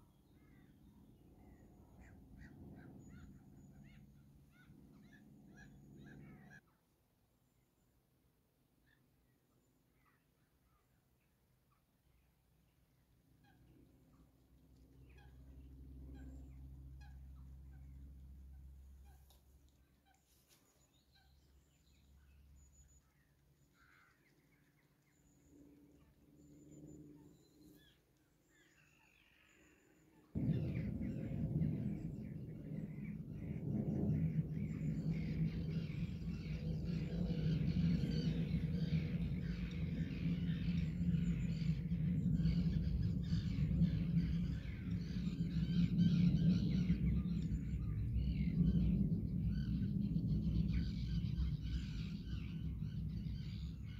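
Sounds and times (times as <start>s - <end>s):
steady low rumble: 0.0s - 6.6s, 13.7s - 20.0s, 30.3s - 53.9s
birds chirping and singing: 30.4s - 53.9s.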